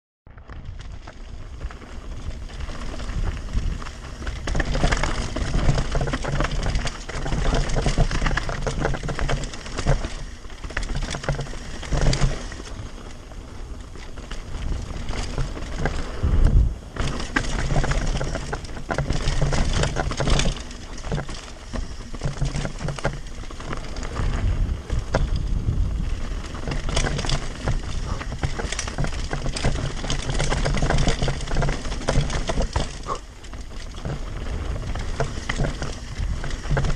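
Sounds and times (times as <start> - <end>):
bike rattling over bumps: 0.3 - 36.9
tyres crunching over gravel: 0.3 - 36.9
low rumble: 14.2 - 18.4, 23.8 - 28.5.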